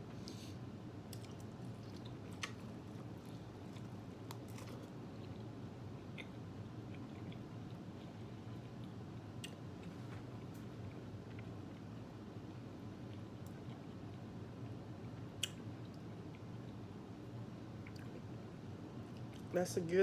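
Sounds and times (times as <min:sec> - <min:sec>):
low steady hum: 0:00.0 - 0:20.0
person biting and chewing corn: 0:01.1 - 0:09.6.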